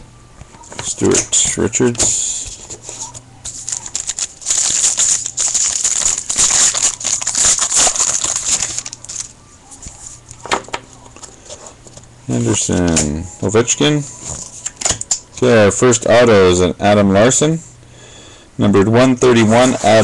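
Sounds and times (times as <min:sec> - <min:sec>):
cards rustling: 0:00.7 - 0:10.5
foil wrapper crinkling: 0:01.8 - 0:10.4.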